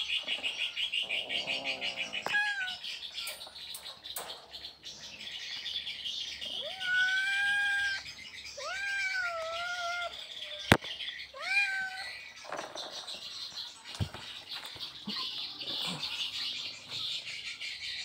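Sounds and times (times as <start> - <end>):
cat meowing: 2.2 - 2.8, 6.6 - 8.0, 8.6 - 10.1, 11.4 - 12.1.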